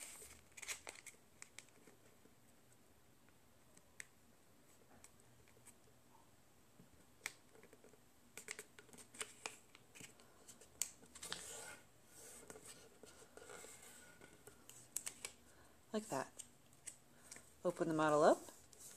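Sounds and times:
paper rustling: 0.0s - 2.0s, 8.4s - 15.4s
paper crinkling and clicking: 0.2s - 2.0s, 13.4s - 15.4s.

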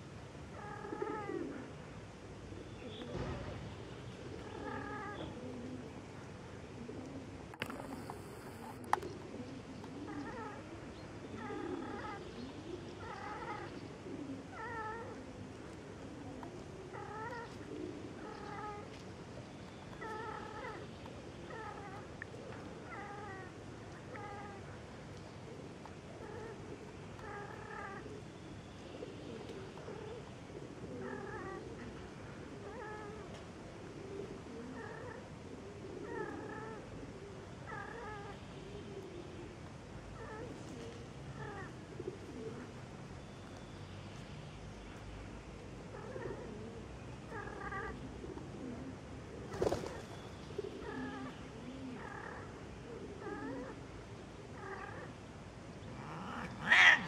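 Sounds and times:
cats yowling: 55.9s - 57.0s
short high cat calls: 55.9s - 57.0s.

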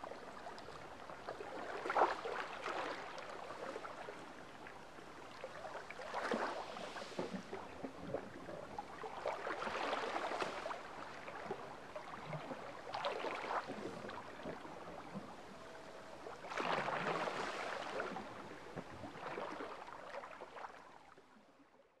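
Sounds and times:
sea lapping against rock: 5.6s - 15.6s, 16.2s - 20.8s.

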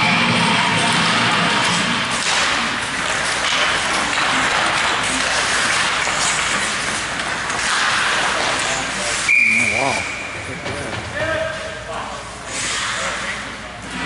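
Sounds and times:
skates scraping ice: 0.7s - 10.2s, 11.0s - 14.0s
hockey sticks knocking: 1.0s - 9.3s.

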